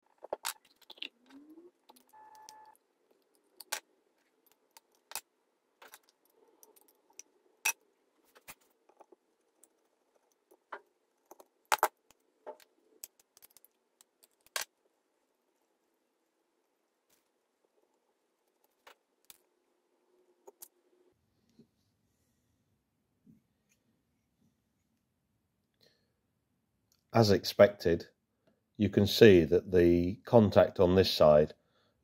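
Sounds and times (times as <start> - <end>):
metal parts and tool clinking: 4.4 - 7.8.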